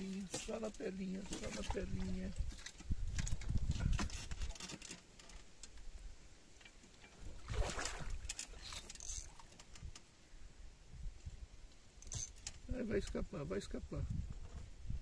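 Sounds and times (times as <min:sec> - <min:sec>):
fishing rods clicking and knocking: 0:00.1 - 0:05.9, 0:06.6 - 0:10.1, 0:12.0 - 0:12.8
fish splashing at the surface: 0:07.4 - 0:08.2.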